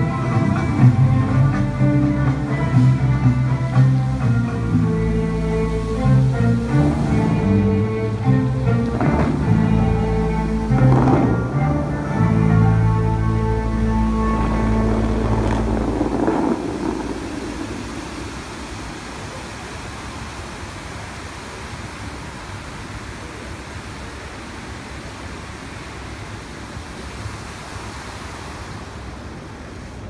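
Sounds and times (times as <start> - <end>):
music: 0.0 - 16.6
water jets splashing: 0.0 - 30.0.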